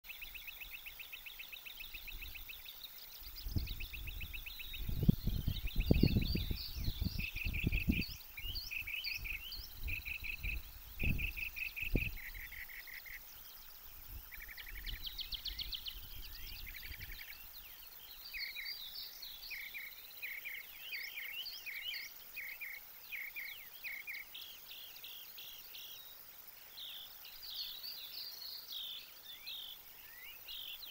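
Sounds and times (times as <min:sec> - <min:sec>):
songbirds singing: 0:00.0 - 0:30.9
low rumbling gusts: 0:03.4 - 0:08.6.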